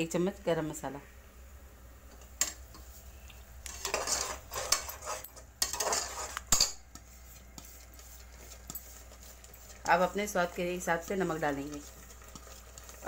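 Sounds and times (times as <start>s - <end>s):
metal spoon scraping thick paste: 3.6s - 13.0s.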